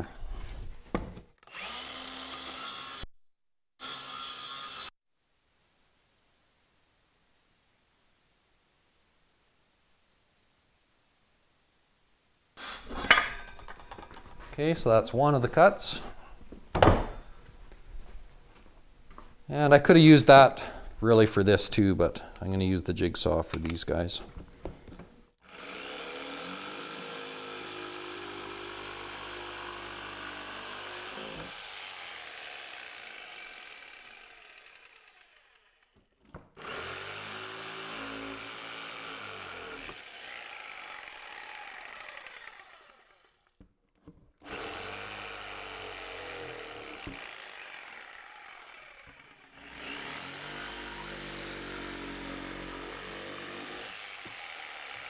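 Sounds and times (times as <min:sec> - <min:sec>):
jigsaw cutting wood panel: 0:01.4 - 0:03.1, 0:03.8 - 0:04.9, 0:12.6 - 0:13.0, 0:25.4 - 0:43.6, 0:44.4 - 0:55.0.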